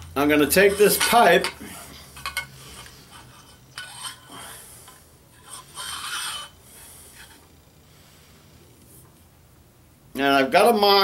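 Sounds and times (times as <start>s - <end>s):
pencil scraping on metal pipe: 0.0s - 1.6s, 2.2s - 7.4s.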